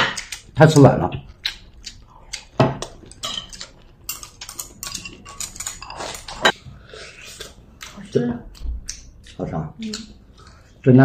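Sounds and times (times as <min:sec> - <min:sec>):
chopsticks clicking on ceramic bowls: 0:01.4 - 0:06.6, 0:07.4 - 0:10.6
person slurping: 0:06.2 - 0:07.7.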